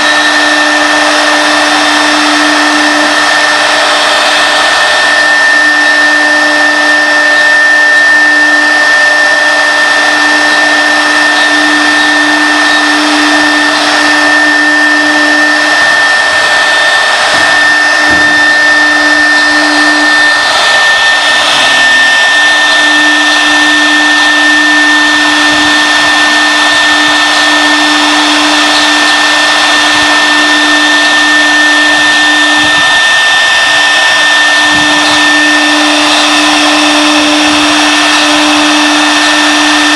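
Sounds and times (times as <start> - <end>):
router spindle whining: 0.0 - 39.9
wood cutting noise: 0.0 - 39.9.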